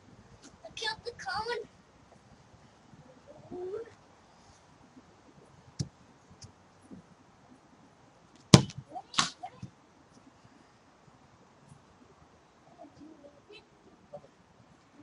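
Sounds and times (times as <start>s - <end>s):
football being kicked: 8.5s - 9.3s.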